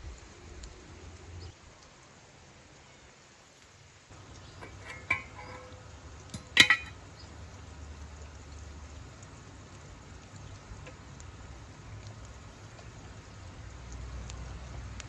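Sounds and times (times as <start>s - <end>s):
metal pot lid clinking: 4.6s - 7.0s.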